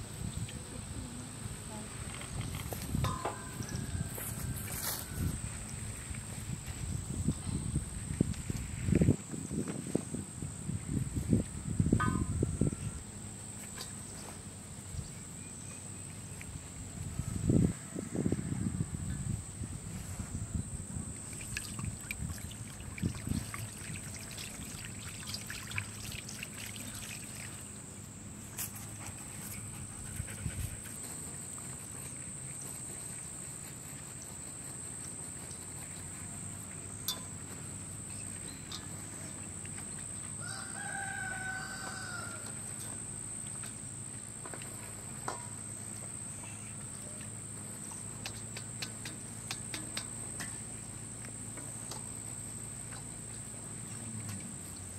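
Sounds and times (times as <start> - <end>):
crickets chirring: 0.0 - 54.9
rooster crowing: 3.4 - 5.5, 17.1 - 18.9, 40.4 - 42.8
water pouring into metal bowl: 21.4 - 27.7.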